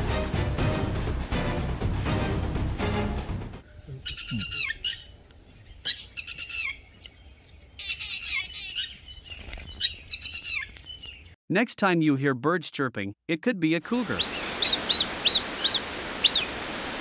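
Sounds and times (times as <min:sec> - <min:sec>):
music: 0:00.0 - 0:03.6
birds chirping: 0:03.6 - 0:11.4, 0:14.1 - 0:16.5.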